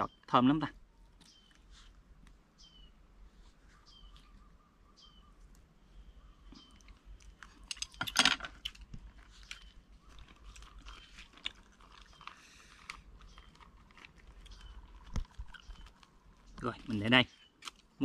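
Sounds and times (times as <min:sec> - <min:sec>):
birds chirping faintly: 0:00.0 - 0:18.0
rice paper crackling: 0:08.8 - 0:17.9.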